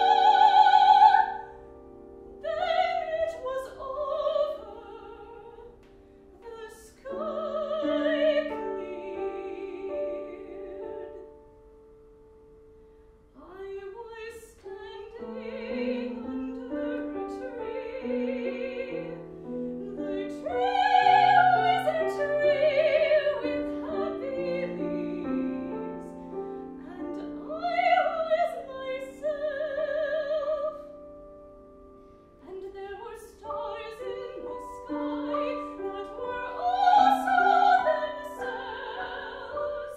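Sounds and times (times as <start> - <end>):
woman singing classical style: 0.0 - 1.7, 2.3 - 11.5, 13.3 - 31.0, 32.4 - 39.9
grand piano: 0.0 - 39.9.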